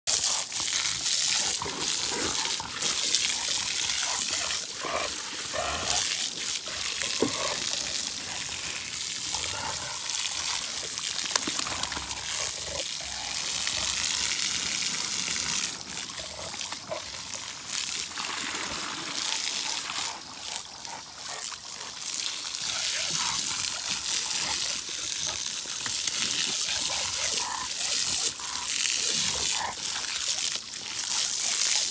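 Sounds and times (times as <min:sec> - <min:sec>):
garden hose spraying water: 0:00.1 - 0:31.9
water splashing into pool: 0:00.1 - 0:31.9.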